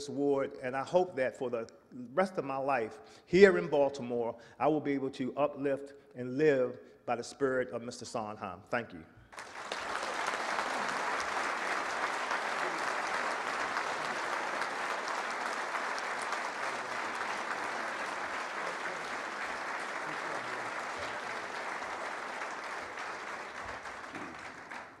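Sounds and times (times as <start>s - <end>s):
audience applauding: 9.3s - 25.0s.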